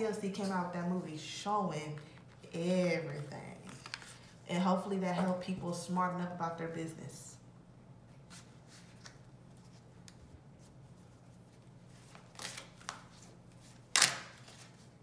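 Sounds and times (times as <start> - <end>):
cards being shuffled: 2.0 - 4.4, 11.9 - 14.9.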